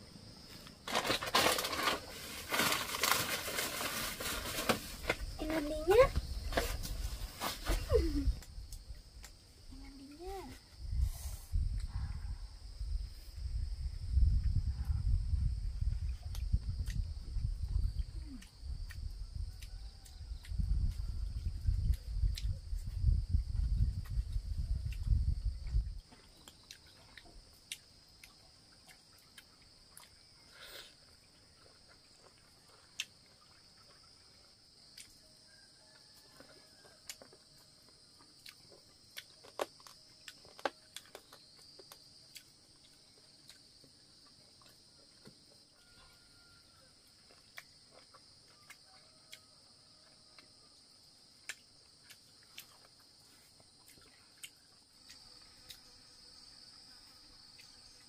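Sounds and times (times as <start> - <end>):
insects chorus: 0.0 - 58.0.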